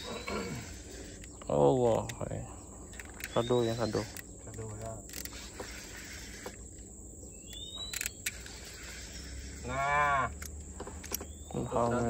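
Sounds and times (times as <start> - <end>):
small clicks: 2.9 - 6.9, 7.5 - 9.2.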